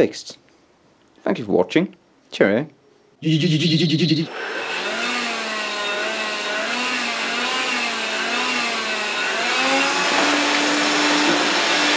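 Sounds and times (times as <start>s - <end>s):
stick vacuum running on carpet: 4.3s - 11.9s.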